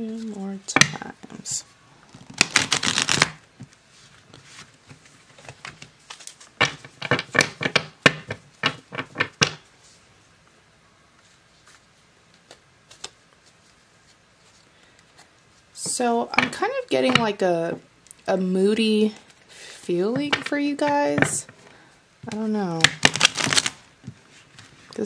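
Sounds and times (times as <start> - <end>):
cards riffle shuffling: 2.1 - 3.4, 22.3 - 23.9.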